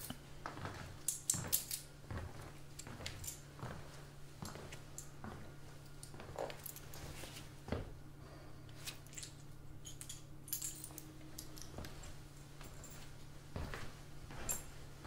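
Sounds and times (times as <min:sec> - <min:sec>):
low steady room hum: 0:00.0 - 0:15.0
footsteps on hard floor: 0:00.5 - 0:01.5, 0:02.1 - 0:05.5, 0:06.1 - 0:08.0, 0:11.7 - 0:14.8
light metallic clinks and jingles: 0:02.8 - 0:03.5, 0:09.0 - 0:13.3, 0:14.3 - 0:14.9.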